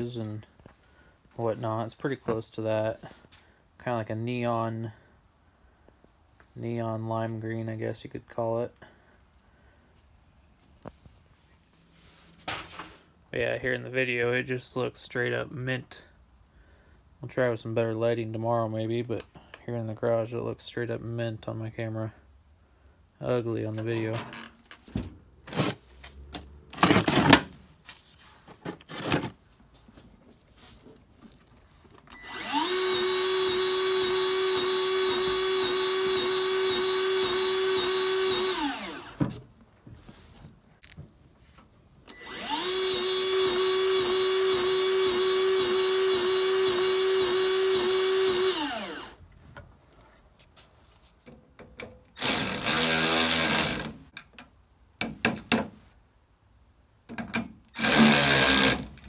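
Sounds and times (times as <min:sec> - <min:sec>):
power drill running: 0:32.1 - 0:39.2, 0:42.1 - 0:49.2, 0:52.2 - 0:54.0, 0:57.8 - 0:58.9.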